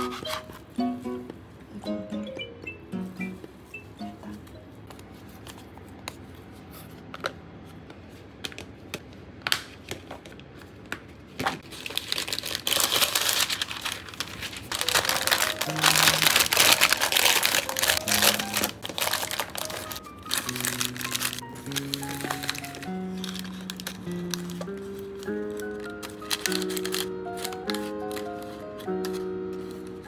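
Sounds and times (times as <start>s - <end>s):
paper crinkling: 0.0s - 0.6s, 11.4s - 30.0s
soft background music: 0.0s - 5.2s, 14.7s - 30.0s.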